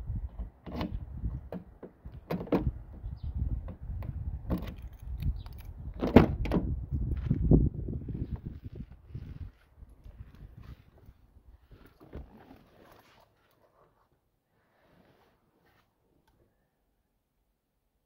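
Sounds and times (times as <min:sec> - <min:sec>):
car door latch opening: 0:00.7 - 0:02.8, 0:06.0 - 0:06.7
keys jingling: 0:04.7 - 0:05.8.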